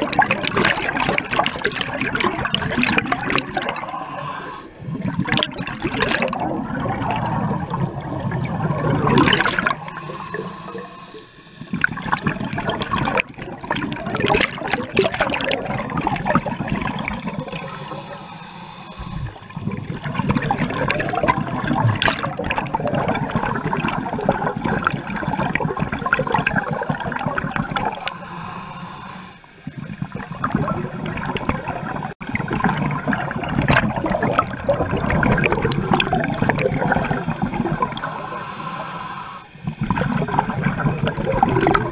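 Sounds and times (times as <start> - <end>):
air bubbling underwater: 0.0 - 10.5, 19.0 - 28.2, 29.9 - 38.1.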